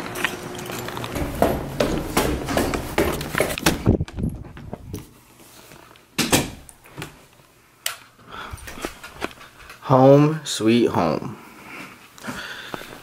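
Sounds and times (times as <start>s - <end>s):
sharp knocks and clicks: 1.1s - 4.2s
footsteps on a staircase: 1.1s - 5.1s.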